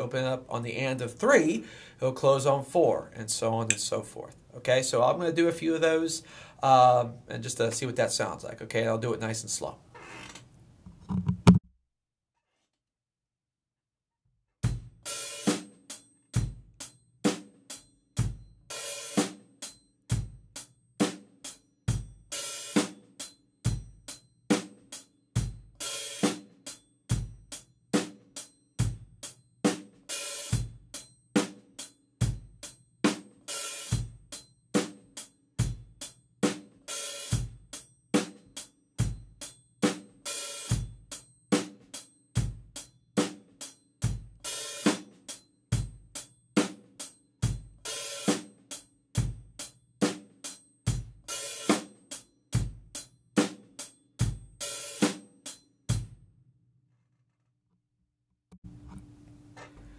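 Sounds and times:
drum kit slow beat: 14.6s - 56.2s.

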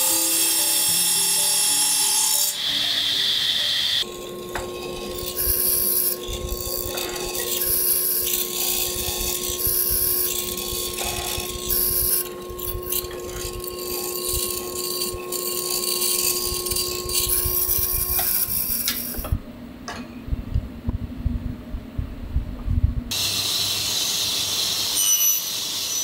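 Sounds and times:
mortiser motor humming: 0.0s - 19.4s
chisel rasping into wood: 4.0s - 19.2s.

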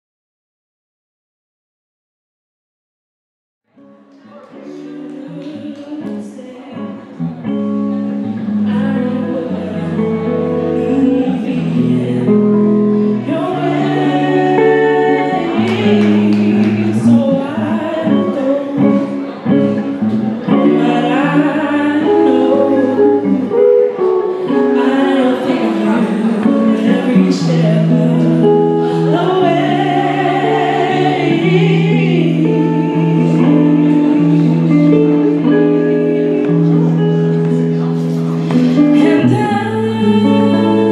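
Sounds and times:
guitar accompaniment: 3.7s - 40.9s
woman singing into a microphone: 4.5s - 40.9s.

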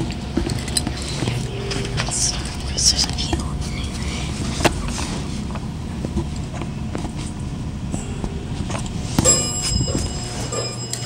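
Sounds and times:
low rumble: 0.0s - 10.4s
metallic clink ringing: 9.2s - 11.0s.

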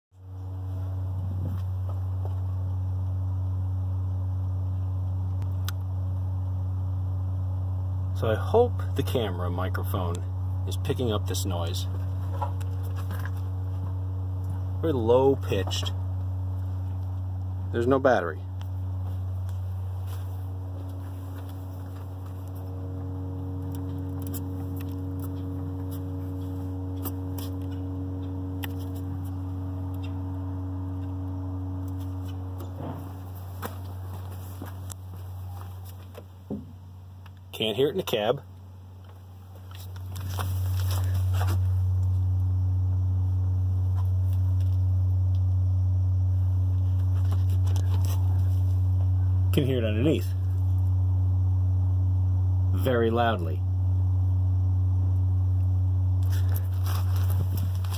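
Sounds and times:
low-pitched hum: 0.2s - 57.9s
faint higher tones: 13.6s - 36.0s.

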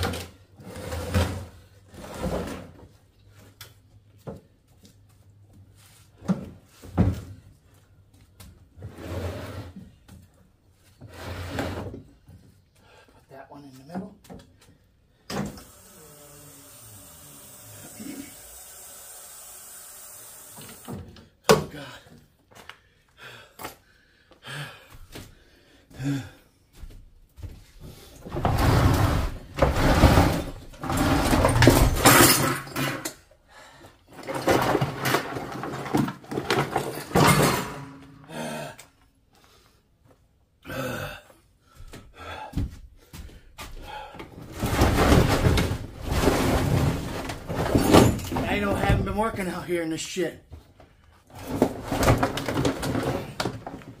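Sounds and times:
scrap metal clunking: 28.3s - 33.0s, 44.4s - 49.4s
metal scraping and clattering: 28.3s - 33.2s, 44.4s - 49.5s.

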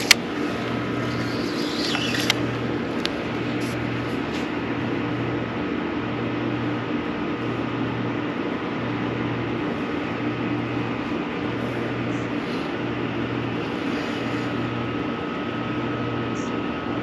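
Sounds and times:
small clicks: 0.0s - 2.4s
low machinery hum: 0.0s - 17.0s
outdoor noise: 0.0s - 17.0s.

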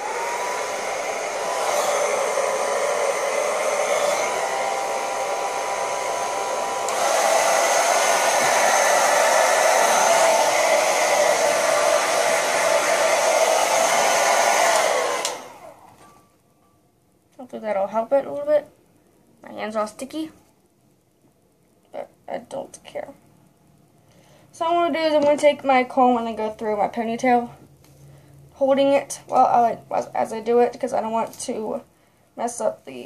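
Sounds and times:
hair dryer blowing: 0.0s - 16.0s.

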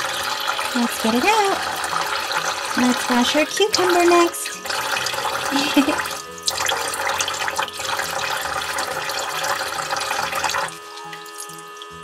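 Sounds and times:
faucet water running: 0.0s - 12.0s
water splashing on plastic toy: 0.6s - 11.6s.

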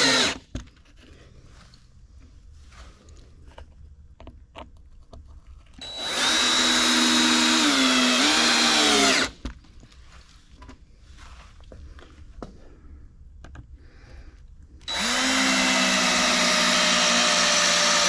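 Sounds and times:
power drill driving screw into wood: 0.0s - 0.4s, 5.8s - 9.4s, 14.8s - 18.0s.

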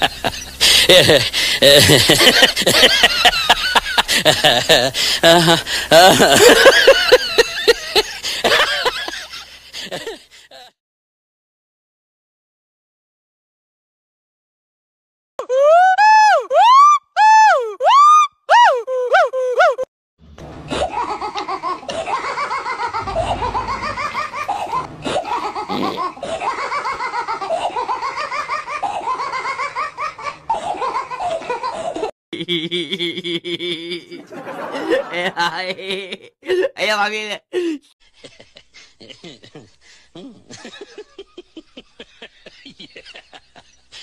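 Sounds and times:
person laughing: 0.0s - 10.7s, 18.5s - 19.9s, 20.7s - 29.8s, 30.5s - 36.8s, 37.6s - 43.8s.

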